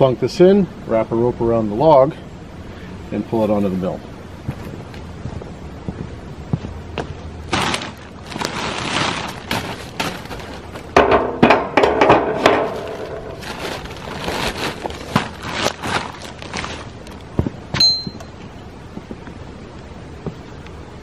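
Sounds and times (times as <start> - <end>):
footsteps on plastic sheeting: 4.4 - 11.1, 11.8 - 17.7
metal clatter and scraping: 8.6 - 16.2.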